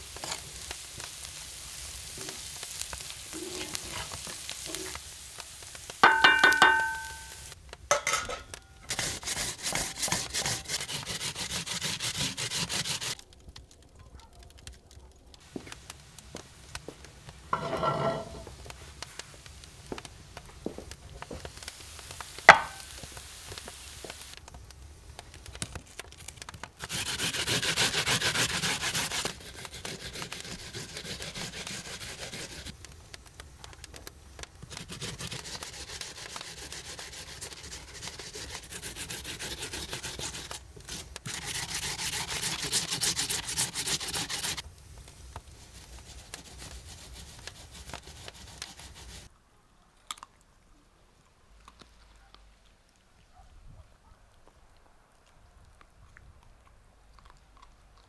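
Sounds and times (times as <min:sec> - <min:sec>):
sharp clink: 0:06.0 - 0:08.6
food scraping on metal grater: 0:08.8 - 0:13.2, 0:26.8 - 0:32.7, 0:34.6 - 0:44.6, 0:46.1 - 0:49.3.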